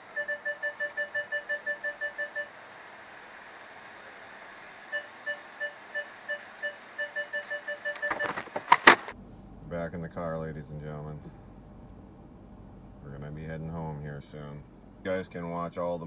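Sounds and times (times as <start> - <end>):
parking sensor beeping: 0.0 - 2.8, 4.9 - 9.2.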